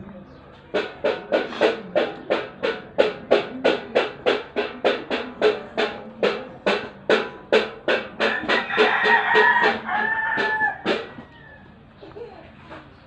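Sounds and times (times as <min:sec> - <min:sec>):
music with steady drumbeat: 0:00.5 - 0:11.5
rooster crowing: 0:08.3 - 0:11.8.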